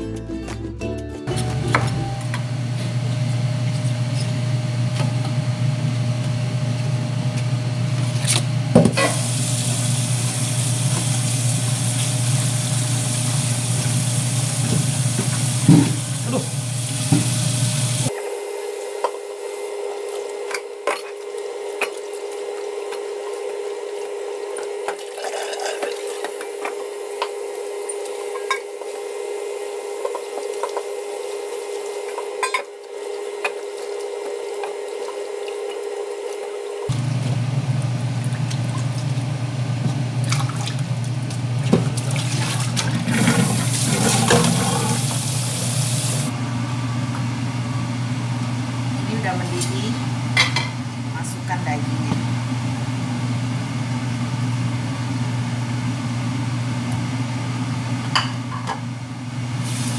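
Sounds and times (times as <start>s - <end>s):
pots and lid clattering: 43.0s - 45.2s.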